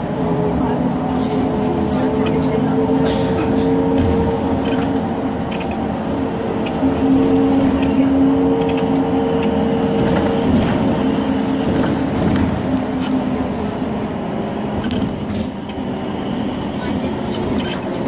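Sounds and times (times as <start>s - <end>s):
bus engine and road rumble: 0.0s - 18.0s.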